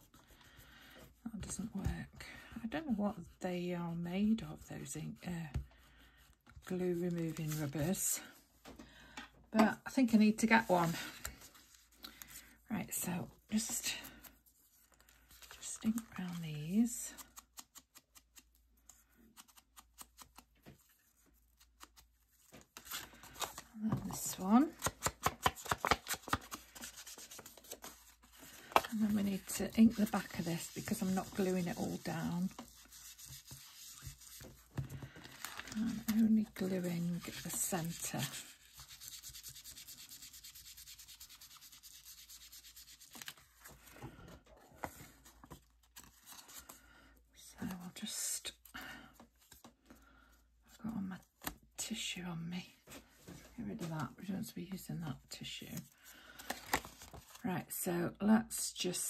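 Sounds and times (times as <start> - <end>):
paper rustling: 6.6 - 8.0, 19.0 - 46.8, 56.1 - 57.4
tool scrubbing on paper: 29.2 - 34.7, 37.2 - 43.2.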